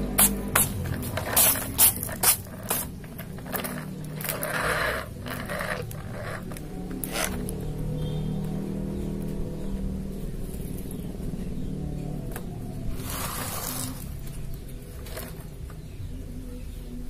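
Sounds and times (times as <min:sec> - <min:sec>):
toy scraping on cardboard: 0:00.2 - 0:07.6, 0:12.9 - 0:15.6.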